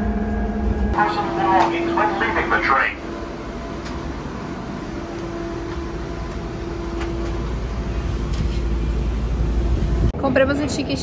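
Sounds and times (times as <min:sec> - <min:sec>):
vehicle rumble: 0:00.0 - 0:11.0.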